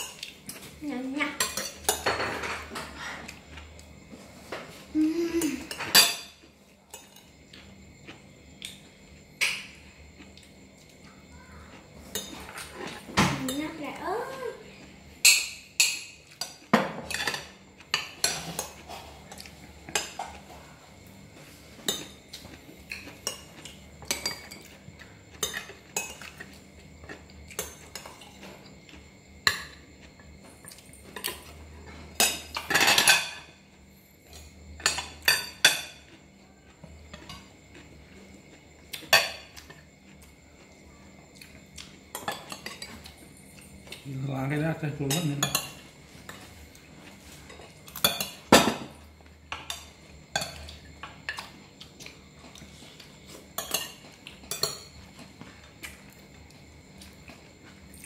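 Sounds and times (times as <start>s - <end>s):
cutlery clinking on plates: 1.4s - 3.3s, 5.6s - 7.7s, 15.2s - 20.6s, 21.7s - 28.5s, 30.7s - 33.6s, 34.3s - 36.2s, 47.3s - 51.6s, 53.3s - 55.4s.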